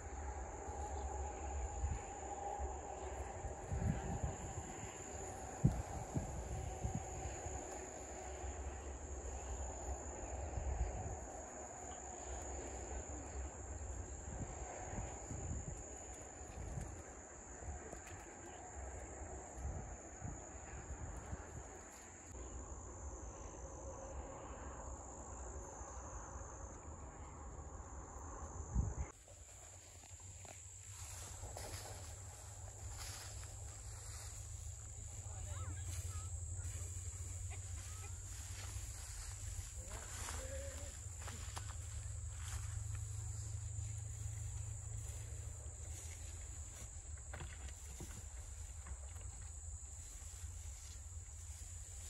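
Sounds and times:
crickets chirping: 0:00.0 - 0:52.0.

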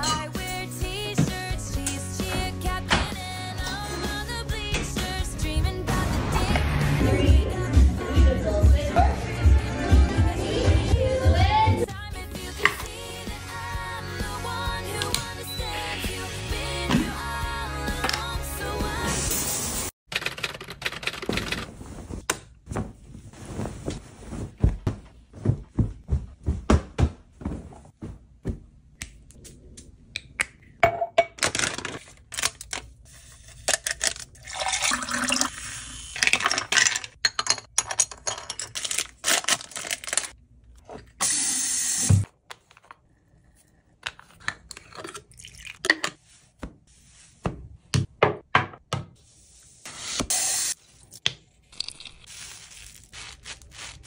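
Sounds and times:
water pouring into a glass: 0:34.4 - 0:35.7, 0:45.3 - 0:45.8.

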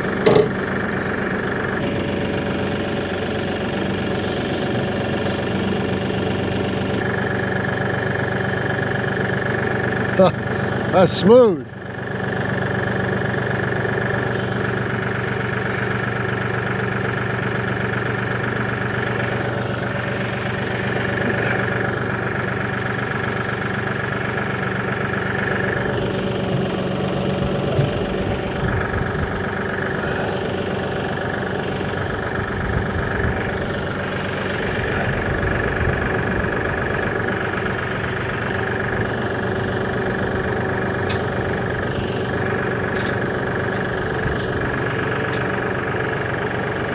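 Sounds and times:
low rumbling and clunks: 0:00.0 - 0:00.7, 0:25.0 - 0:45.7
tractor diesel engine running: 0:00.0 - 0:46.9.

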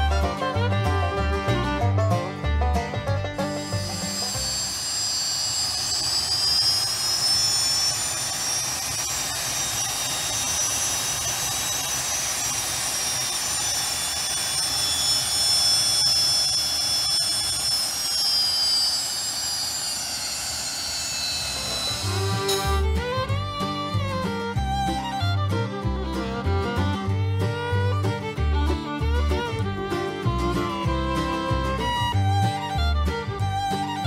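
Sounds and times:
turbojet compressor whine: 0:03.4 - 0:25.9.

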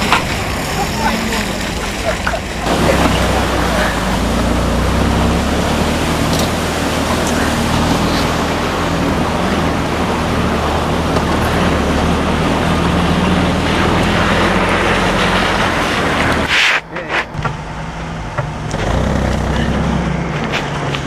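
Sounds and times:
vehicle engine running under load: 0:00.0 - 0:21.0
water and mud rushing: 0:00.0 - 0:21.0.

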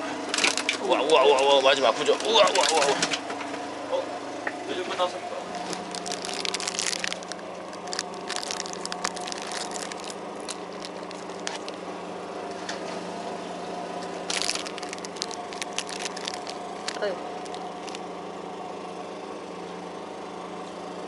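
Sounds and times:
boat engine humming: 0:00.0 - 0:19.6
plastic snack packet crinkling: 0:05.5 - 0:11.8, 0:14.3 - 0:18.0.

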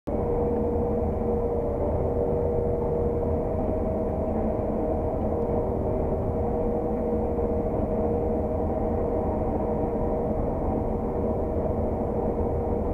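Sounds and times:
combine harvester drone: 0:00.1 - 0:12.9
steady whine: 0:00.1 - 0:12.9.

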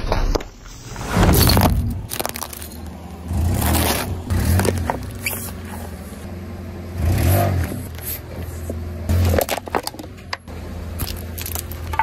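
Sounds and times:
car rumbling: 0:00.7 - 0:12.0
plastic balls crunching and cracking: 0:01.4 - 0:05.3, 0:11.0 - 0:12.0.

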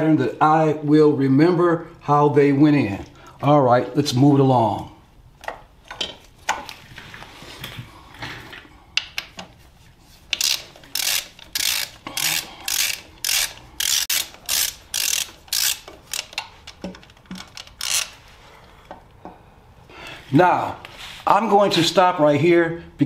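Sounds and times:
ratchet wrench clicking: 0:10.3 - 0:18.2.

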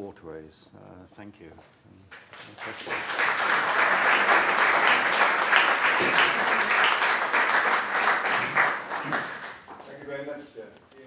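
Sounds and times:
audience applauding: 0:02.1 - 0:10.3.

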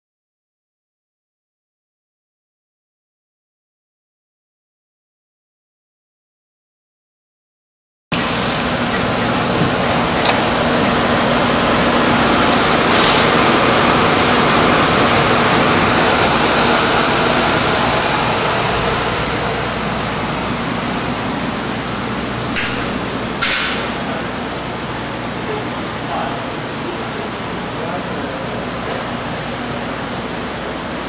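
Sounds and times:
loud rushing noise: 0:08.1 - 0:21.1.

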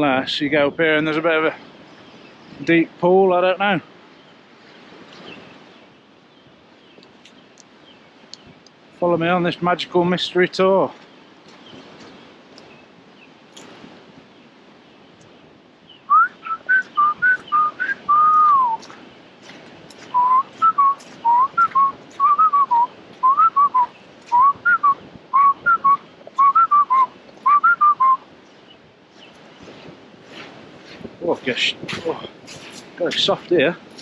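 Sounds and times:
man whistling a tune: 0:16.1 - 0:18.8, 0:20.2 - 0:28.2.

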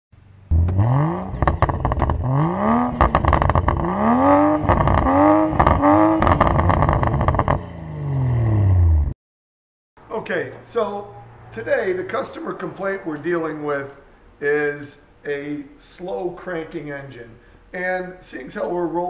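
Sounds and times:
car engine revving: 0:00.5 - 0:09.2.

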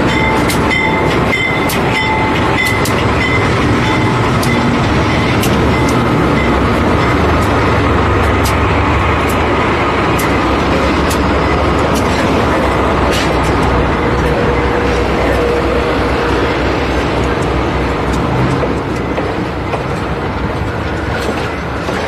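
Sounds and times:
diesel locomotive idling: 0:00.0 - 0:22.0
sharp ticks: 0:00.1 - 0:08.6.

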